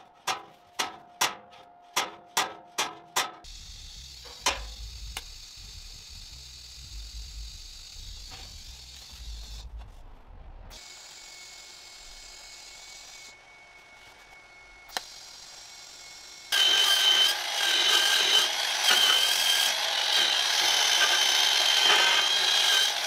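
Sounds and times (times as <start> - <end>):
welding arc hissing: 3.5 - 9.8
low rumble: 3.5 - 10.8
thin high whine: 3.5 - 18.4.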